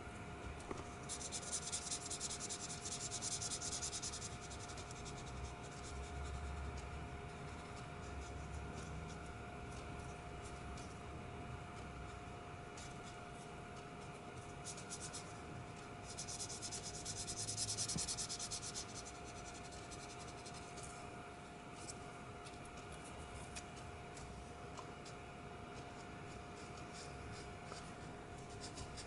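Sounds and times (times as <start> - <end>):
marker scratching on paper: 1.0 - 6.8, 16.1 - 20.8, 25.8 - 29.0.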